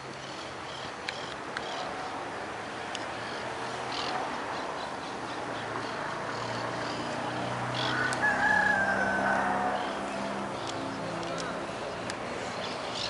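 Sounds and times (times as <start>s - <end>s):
outdoor background noise: 0.0s - 13.0s
rooster crowing: 7.8s - 10.3s.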